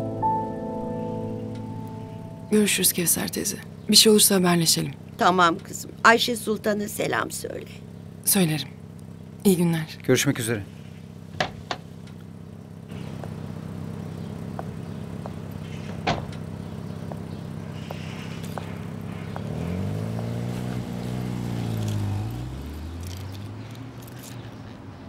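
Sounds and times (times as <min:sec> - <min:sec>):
car engine idling and revving: 0:00.0 - 0:25.0
car door slam: 0:11.3 - 0:11.9, 0:15.8 - 0:16.4.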